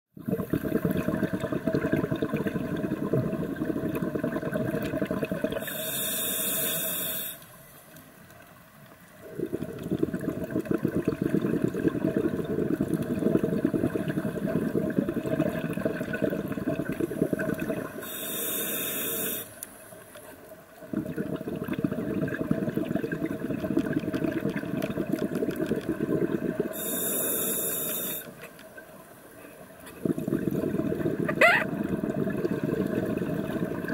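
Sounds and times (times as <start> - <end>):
exhaled bubbles rushing underwater: 0.2 - 5.7, 9.2 - 18.1, 20.8 - 26.8, 30.0 - 33.9
regulator inhalation hiss: 5.6 - 7.6, 17.9 - 19.6, 26.7 - 28.4.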